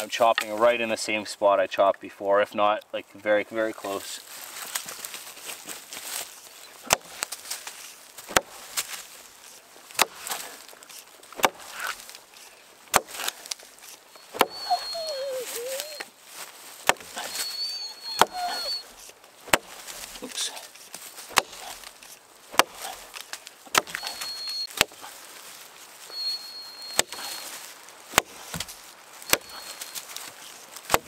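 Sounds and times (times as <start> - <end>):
axe chopping into log: 6.8 - 7.3, 8.3 - 8.6, 10.0 - 10.5, 11.4 - 12.0, 12.9 - 13.4, 14.3 - 14.6, 16.8 - 17.2, 19.5 - 19.8, 21.3 - 21.8, 22.5 - 25.1, 27.0 - 27.3, 28.1 - 29.6.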